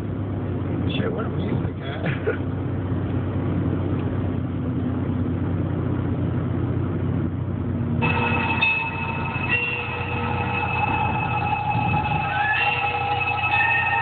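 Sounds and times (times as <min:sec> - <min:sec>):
car engine and tyre drone: 0:00.0 - 0:14.0
high multi-tone sound: 0:08.0 - 0:14.0.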